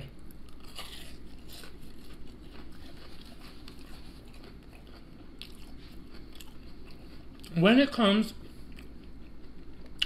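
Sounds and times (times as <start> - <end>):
chewing crispy fried food: 0.1 - 10.0.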